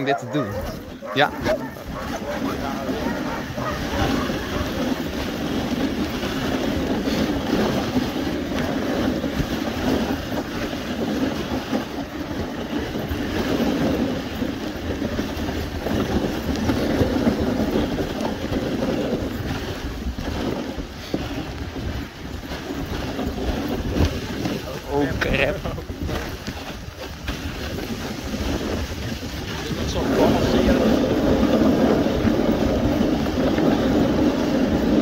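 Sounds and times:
sled runners rushing on snow: 0.0 - 35.0
wind on microphone: 0.0 - 35.0.

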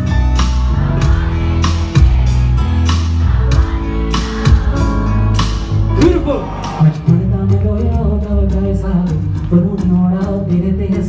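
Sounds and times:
keyboard: 0.0 - 11.0
steady drum beat: 0.0 - 11.0.

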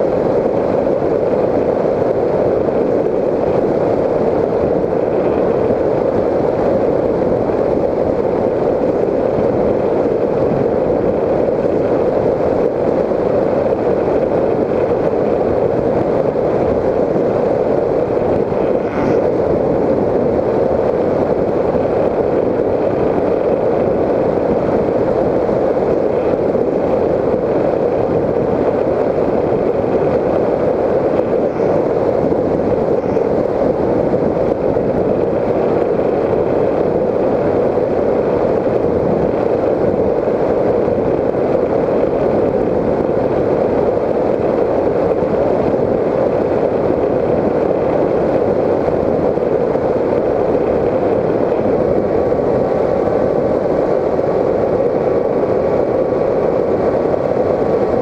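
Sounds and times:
model airplane airflow and motor: 0.0 - 58.0.

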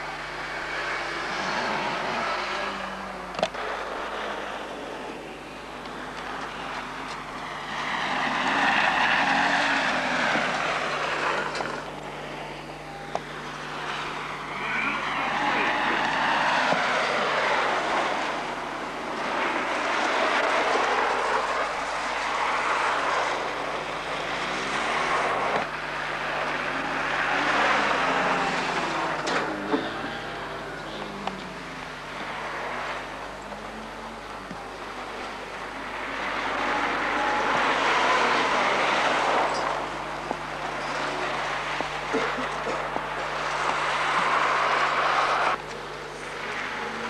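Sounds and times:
racing car engines revving: 0.0 - 47.0.

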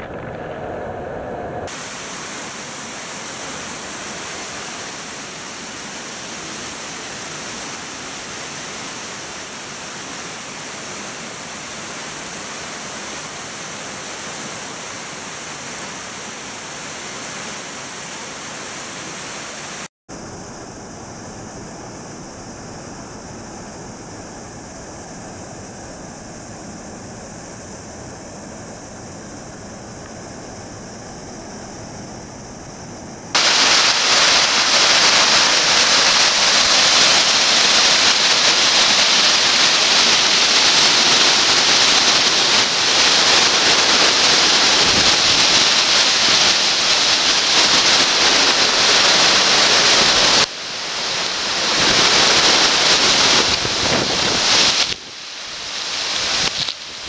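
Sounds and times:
waterfall rushing: 1.7 - 19.9, 33.4 - 57.0.

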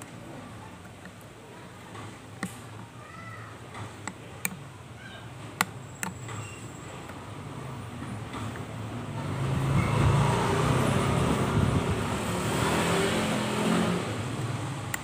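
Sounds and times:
vehicle engine passing by: 9.0 - 14.9.

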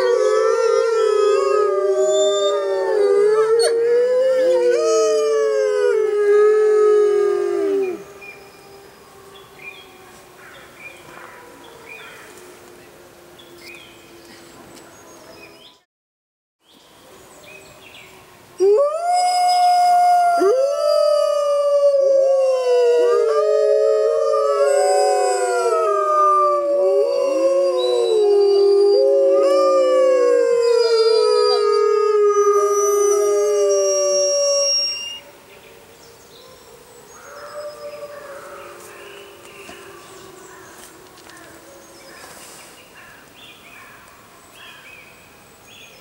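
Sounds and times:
wolves howling in chorus: 0.0 - 12.4, 19.8 - 35.2, 36.2 - 42.3.

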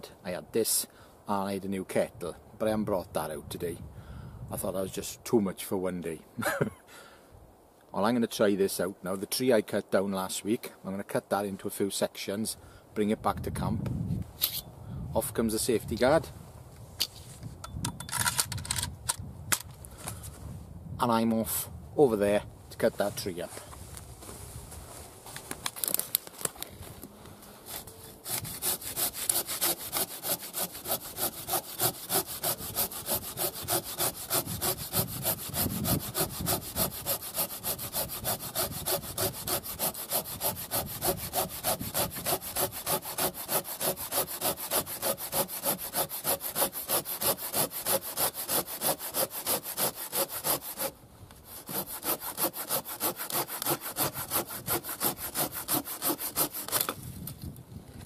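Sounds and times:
pruning saw cutting log: 27.6 - 57.0.

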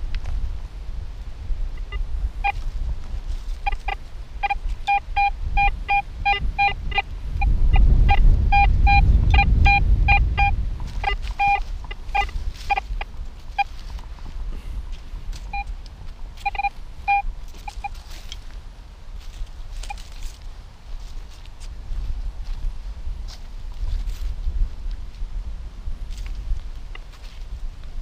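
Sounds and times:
wind rumbling on microphone: 0.0 - 28.0
metal detector beeping: 1.8 - 2.6, 3.6 - 13.8, 15.4 - 15.7, 16.4 - 18.2, 19.8 - 20.1.

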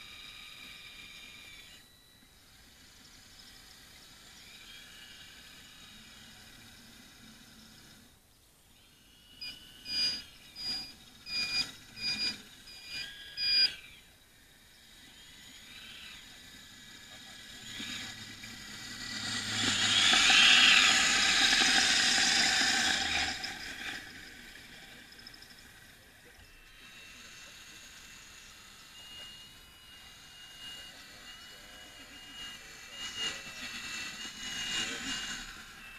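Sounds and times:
short high electric whines: 0.0 - 35.9
model truck whirring past: 9.3 - 35.9.

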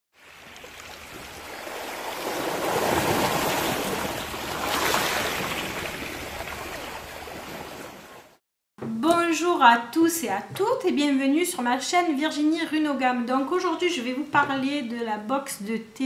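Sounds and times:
sea waves washing over pebbles: 0.2 - 8.2.

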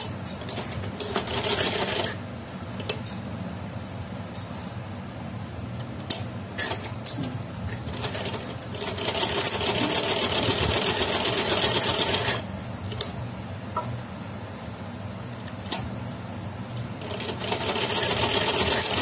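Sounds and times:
sewing machine stitching: 7.9 - 12.4, 17.0 - 19.0.

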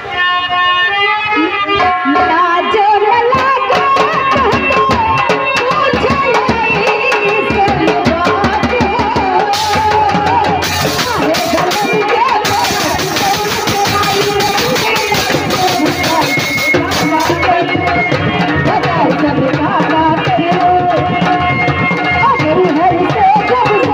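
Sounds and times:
woman singing: 1.3 - 23.9
hand drum strokes: 3.4 - 23.9.

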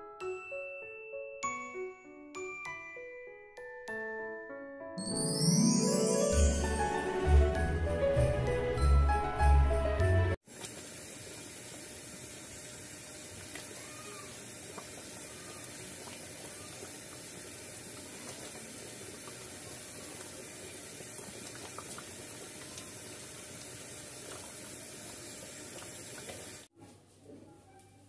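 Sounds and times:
mixture boiling in pan: 10.4 - 26.7.

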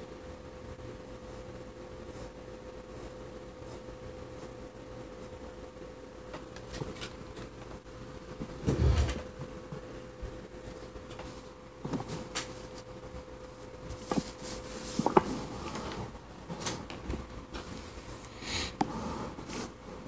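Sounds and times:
faint steady hum: 0.0 - 20.0
paper sliding on wooden desk: 8.6 - 9.2.

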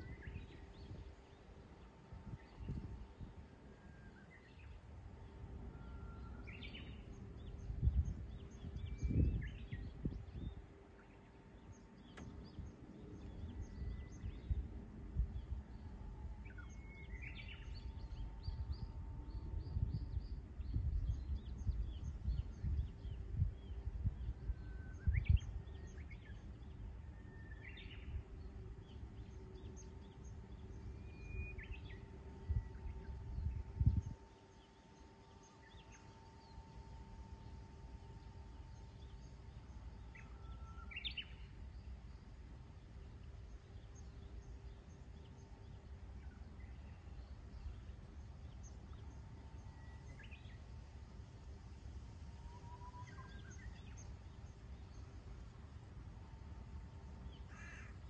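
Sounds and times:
wind gusts on microphone: 0.0 - 3.7, 6.4 - 10.8, 11.6 - 27.0, 31.2 - 36.3
faint steady hum: 0.0 - 58.0
songbirds singing and chirping: 0.0 - 58.0.

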